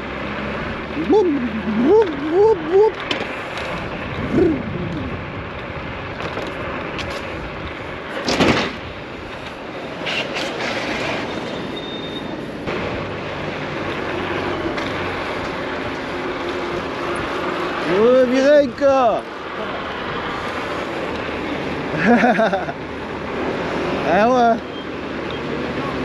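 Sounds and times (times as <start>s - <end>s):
wind: 0.0s - 26.0s
tyre rumble on road: 2.9s - 17.8s.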